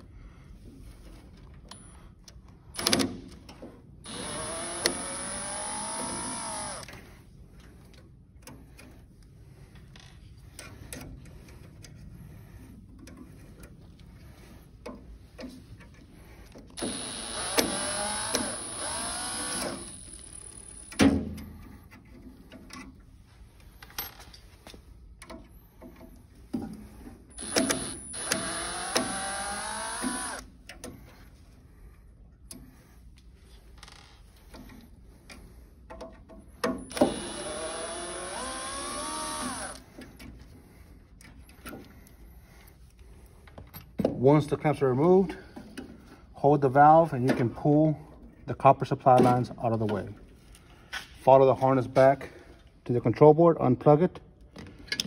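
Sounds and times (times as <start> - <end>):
cordless drill motor whine: 4.0 - 6.9, 16.8 - 21.0, 27.4 - 30.5, 36.9 - 39.9.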